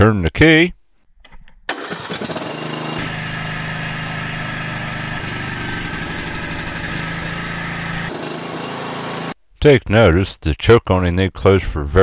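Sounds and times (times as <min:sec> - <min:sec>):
riding mower engine running: 0:01.7 - 0:09.4.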